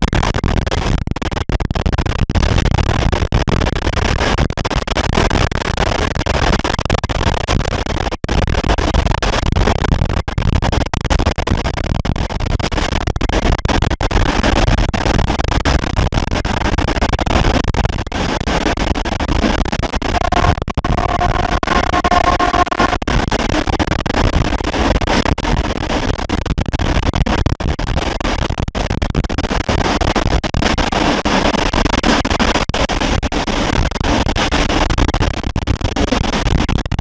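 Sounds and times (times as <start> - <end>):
two-note tone: 20.2 - 23.0.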